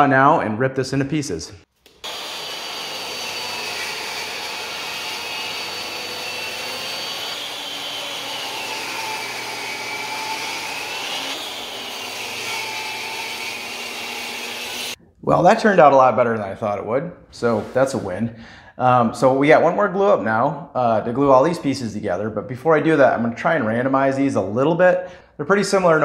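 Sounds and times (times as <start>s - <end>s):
table saw cutting wood: 1.9s - 15.0s.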